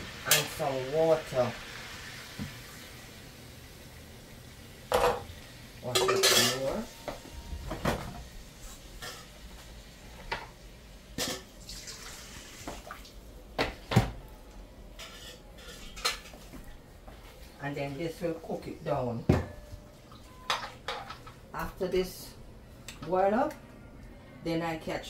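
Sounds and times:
metal kitchenware clanking: 5.9s - 6.9s, 15.0s - 16.3s, 20.3s - 21.4s.

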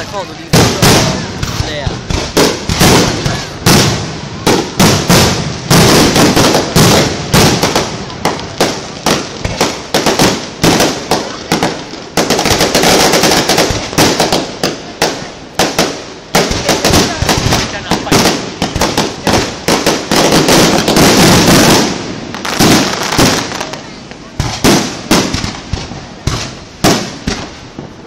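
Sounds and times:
fireworks crackling: 0.0s - 28.0s.

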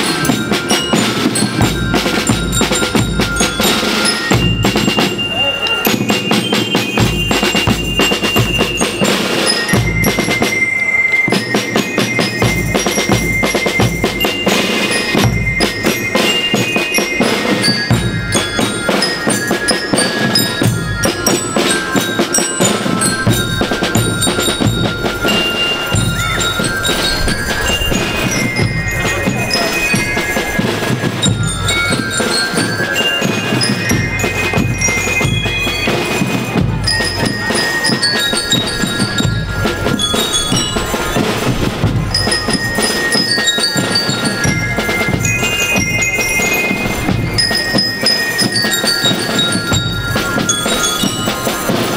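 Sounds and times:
snare and bass drums: 0.0s - 10.7s, 11.3s - 51.9s
bell lyres playing melody: 0.0s - 51.9s.

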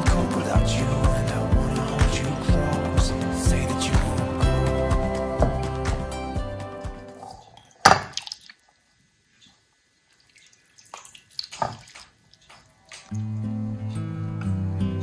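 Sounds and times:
music: 0.0s - 7.3s, 13.1s - 15.0s.

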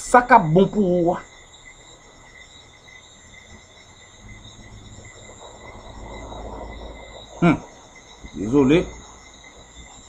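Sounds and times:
insects chirping: 0.0s - 10.0s
low rumble: 4.1s - 10.0s.

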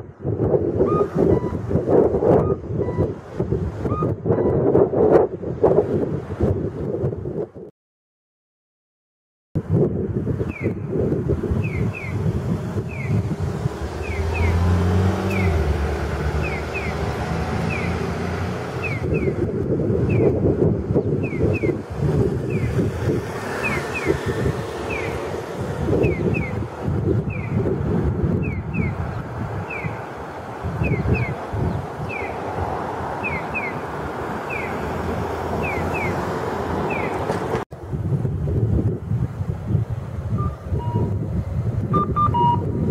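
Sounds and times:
road traffic rumble: 0.0s - 7.4s, 9.6s - 42.9s
wind: 0.0s - 7.7s, 9.6s - 42.9s
pedestrian signal chirps: 0.8s - 1.6s, 2.4s - 3.2s, 11.6s - 12.2s, 12.9s - 13.2s, 14.0s - 14.6s, 16.4s - 17.0s, 18.8s - 19.4s, 21.2s - 21.8s, 26.0s - 26.6s, 29.7s - 30.0s, 30.8s - 31.4s, 32.0s - 32.4s, 33.2s - 33.8s, 34.5s - 34.8s, 35.6s - 36.2s, 36.9s - 37.2s, 40.4s - 41.2s, 41.9s - 42.9s
pedestrian crossing chirping signal: 0.8s - 3.2s, 3.8s - 4.8s, 10.5s - 10.9s, 11.6s - 20.4s, 21.0s - 37.6s, 40.3s - 41.2s, 41.9s - 42.9s.

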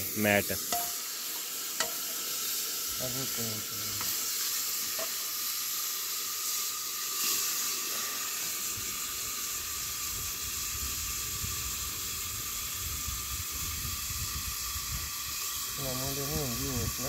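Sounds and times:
steam hissing and sizzling: 0.0s - 17.0s.

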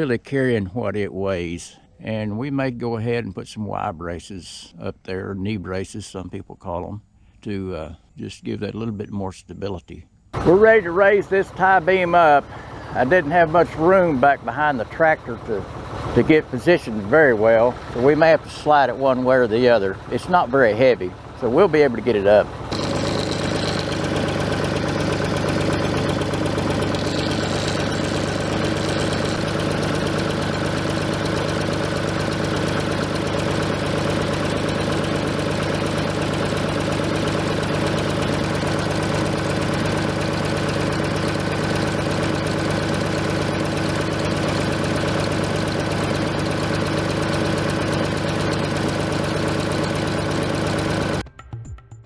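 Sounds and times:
tractor engine running: 10.4s - 51.2s.

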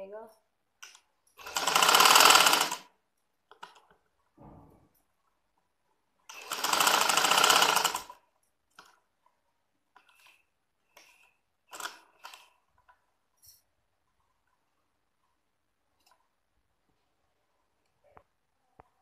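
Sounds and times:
sewing machine running: 1.4s - 2.9s, 6.3s - 8.2s, 11.0s - 12.5s.

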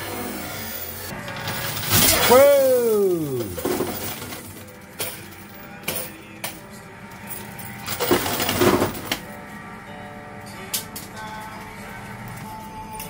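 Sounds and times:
coins clinking and spilling: 0.7s - 6.6s, 7.2s - 9.2s.

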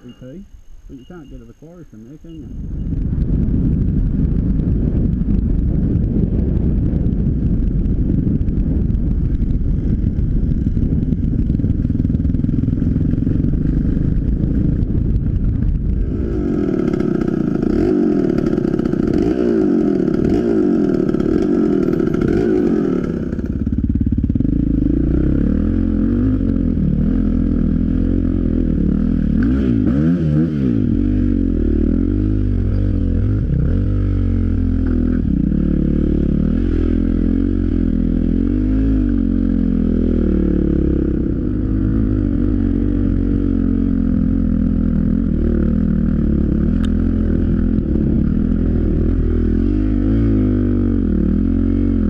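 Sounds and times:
dirt bike engines revving: 0.0s - 5.0s, 15.9s - 52.0s
wind noise: 0.0s - 52.0s.

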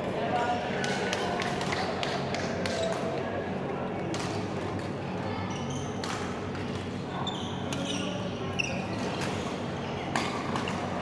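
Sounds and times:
shoes squeaking on court floor: 5.4s - 11.0s
rackets striking shuttlecocks: 9.0s - 10.8s.

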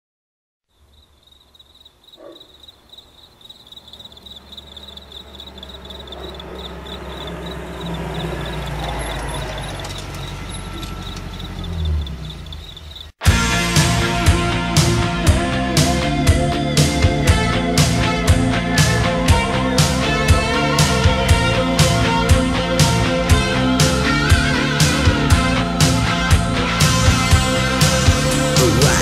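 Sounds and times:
insect chirring: 0.7s - 13.2s.

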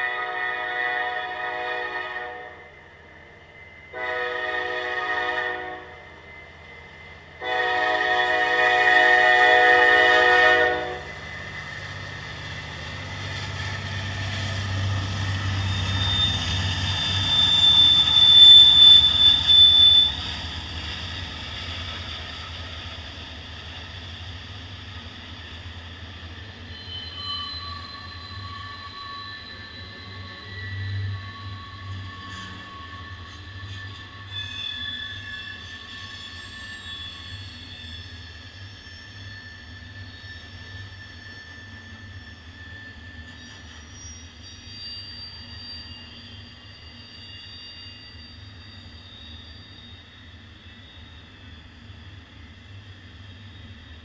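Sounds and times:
locomotive horn blasts: 0.0s - 2.7s, 3.9s - 6.0s, 7.4s - 11.2s
locomotive rumbling past: 0.0s - 34.4s
high squeal: 2.5s - 7.6s, 8.2s - 54.0s.

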